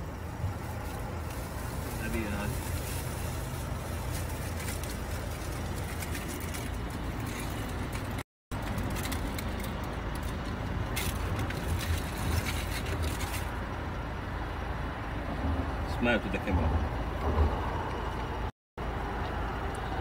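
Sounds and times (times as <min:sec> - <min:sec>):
car idling hum: 0:00.0 - 0:20.0
aluminium foil crinkling: 0:00.6 - 0:13.6.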